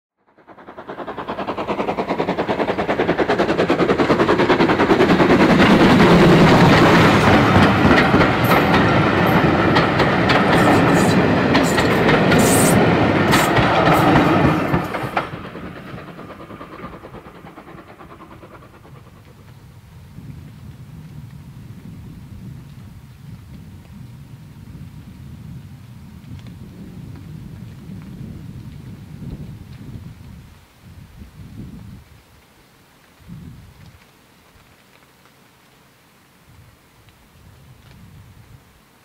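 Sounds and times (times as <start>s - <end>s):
steam locomotive exhaust beats: 0.2s - 32.3s
wheels clicking over rail joints: 0.3s - 19.6s.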